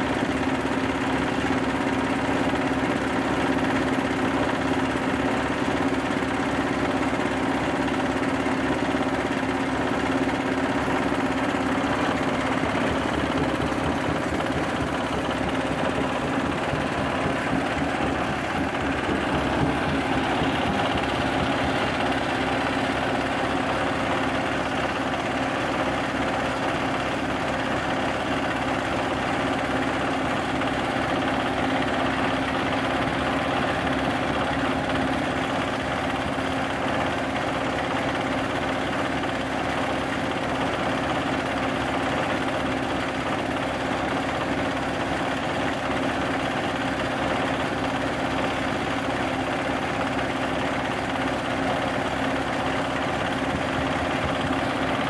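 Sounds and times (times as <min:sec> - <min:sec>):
grinding mill running: 0:00.0 - 0:55.0
diesel engine hum: 0:04.3 - 0:37.7.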